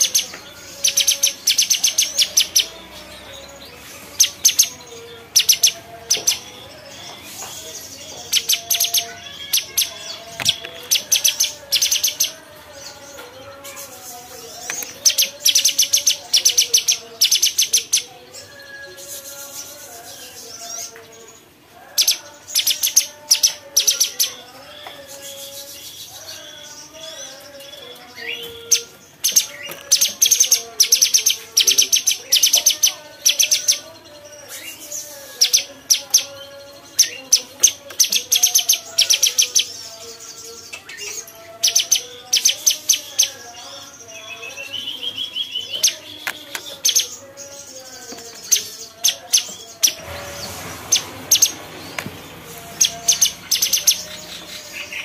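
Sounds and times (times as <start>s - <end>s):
songbird trilled chattering: 28.2s - 33.8s.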